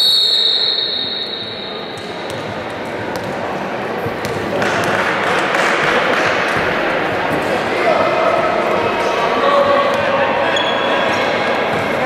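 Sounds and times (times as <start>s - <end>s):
referee's whistle blast: 0.0s - 1.9s
basketball bouncing on court: 2.0s - 3.4s, 4.0s - 6.8s.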